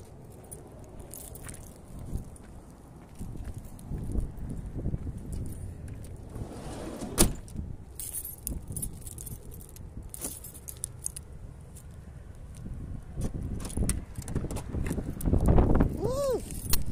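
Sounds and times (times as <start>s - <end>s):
keys jangling: 0.0s - 2.4s, 7.5s - 12.0s, 16.3s - 16.9s.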